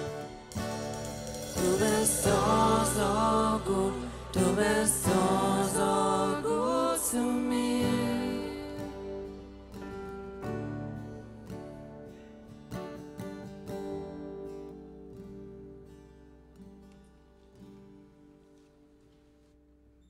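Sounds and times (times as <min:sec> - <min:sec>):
worship band playing slow song: 0:00.0 - 0:11.6
person singing melody: 0:01.4 - 0:09.6.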